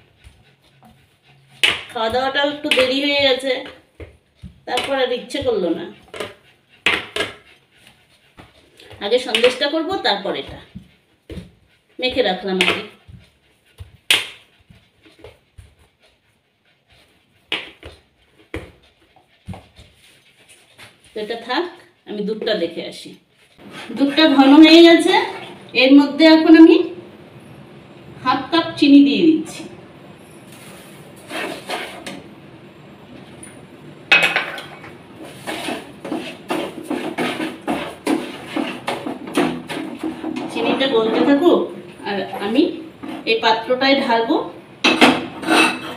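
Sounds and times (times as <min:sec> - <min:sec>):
hands kneading dough: 0:01.6 - 0:16.3, 0:34.8 - 0:40.2
spoon scraping frying pan: 0:30.6 - 0:32.2, 0:34.2 - 0:41.6.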